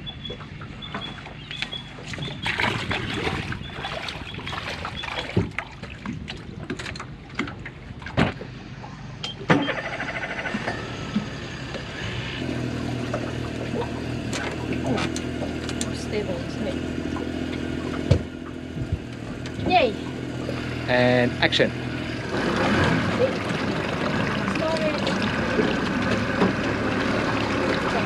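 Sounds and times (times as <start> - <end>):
low engine hum: 0.0 - 28.0
knocks and thuds on metal hull: 17.8 - 19.8.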